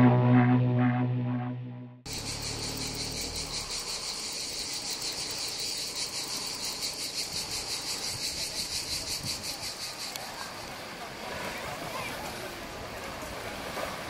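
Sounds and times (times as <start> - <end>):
cicadas buzzing: 2.1 - 10.8.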